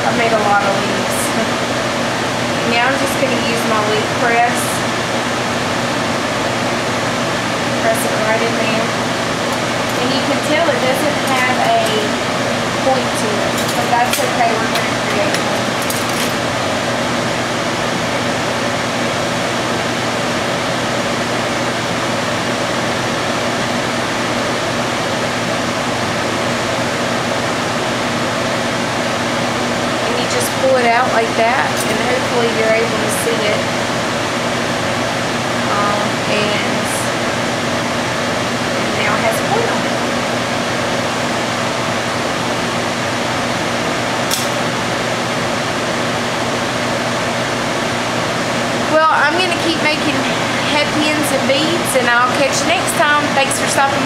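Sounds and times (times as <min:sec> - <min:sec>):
low steady hum: 0:00.0 - 0:54.0
torch flame hissing: 0:00.6 - 0:23.6.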